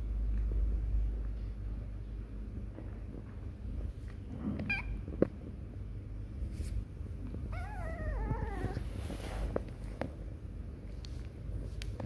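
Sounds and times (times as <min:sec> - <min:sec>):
kitten mewing: 0:07.5 - 0:08.9.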